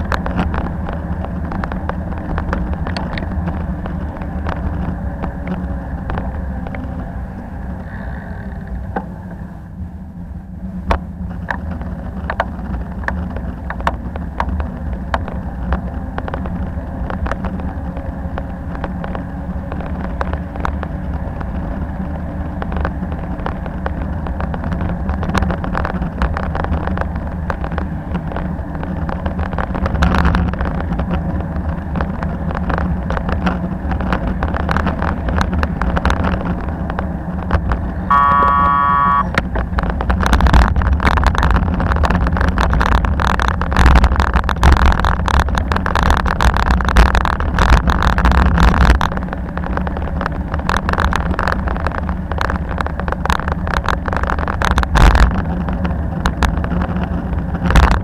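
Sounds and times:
rattling clicks over bumps: 0:00.0 - 0:09.4, 0:10.8 - 0:58.0
bicycle tyres and wind rumble: 0:00.0 - 0:58.0
short pitched ringing tone: 0:38.1 - 0:39.4.

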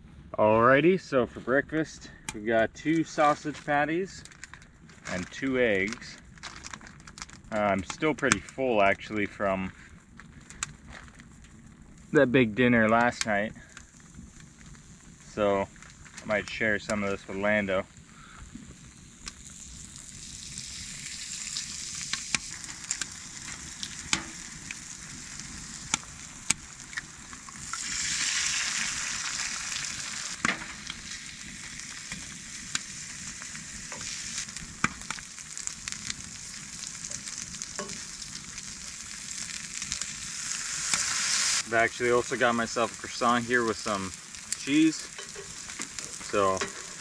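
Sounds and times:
food sizzling in frying pan: 0:12.0 - 0:47.0.

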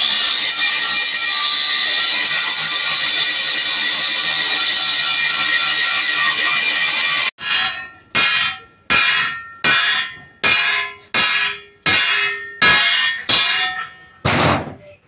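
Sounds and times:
hammer striking metal: 0:07.4 - 0:14.8.

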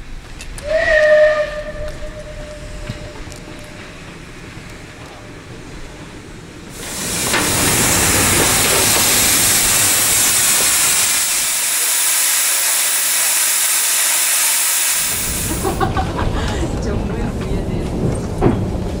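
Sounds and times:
steam locomotive hissing: 0:00.0 - 0:17.0
low rumble: 0:00.8 - 0:11.7, 0:15.1 - 0:19.0.

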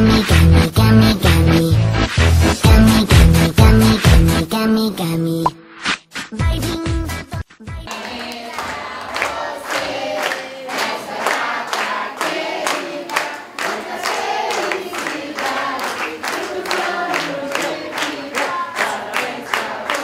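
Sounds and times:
crowd singing a birthday song: 0:07.9 - 0:20.0
people clapping in time: 0:07.9 - 0:20.0.

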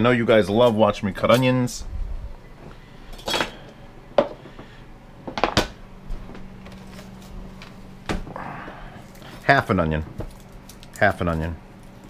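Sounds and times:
faint steady hum: 0:00.0 - 0:12.0
knocks and clicks of kitchen utensils: 0:05.2 - 0:05.8.

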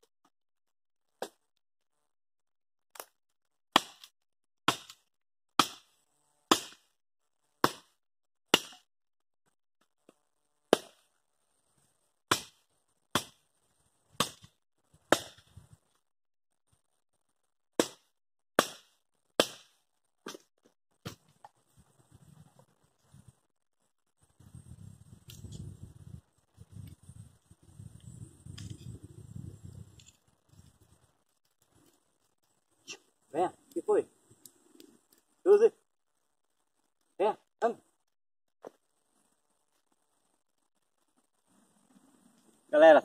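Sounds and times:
chopping dry branches: 0:02.9 - 0:04.1, 0:04.7 - 0:08.9, 0:10.0 - 0:11.1, 0:12.3 - 0:13.5, 0:14.1 - 0:15.6, 0:17.7 - 0:21.6.

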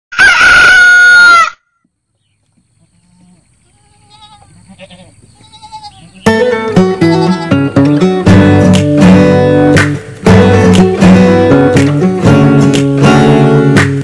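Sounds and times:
goat bleating: 0:02.8 - 0:08.1
acoustic guitar music: 0:06.2 - 0:14.0.

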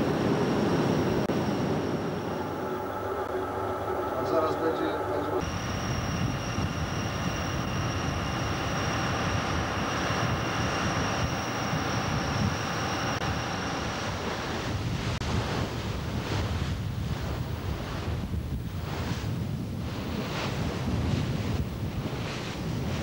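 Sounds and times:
thin high whine: 0:00.0 - 0:15.2
sea water rushing along hull: 0:00.0 - 0:23.0
wind buffeting microphone: 0:00.0 - 0:23.0.

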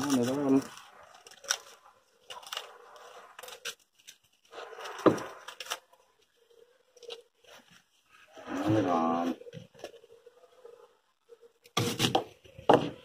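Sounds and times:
plastic wrap tearing and rustling: 0:00.0 - 0:06.4.

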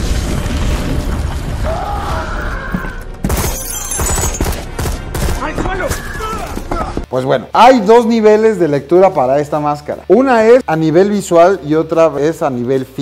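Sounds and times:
rumbling explosion: 0:00.0 - 0:02.7
sharp cracks and impacts: 0:00.0 - 0:06.0
film music: 0:01.4 - 0:13.0
glass shattering: 0:03.2 - 0:04.6.

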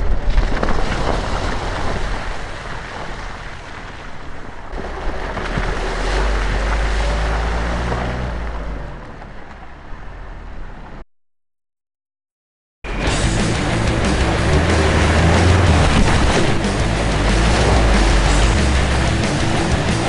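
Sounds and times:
tyres churning through mud: 0:00.0 - 0:10.9, 0:12.9 - 0:20.0
water splashing: 0:00.1 - 0:08.8, 0:13.0 - 0:20.0
car engine running: 0:12.9 - 0:20.0.

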